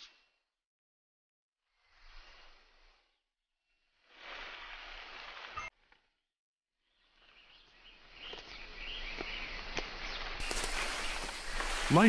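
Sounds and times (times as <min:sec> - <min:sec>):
birds chirping: 0:06.9 - 0:12.0
rainforest ambience hiss: 0:08.2 - 0:12.0.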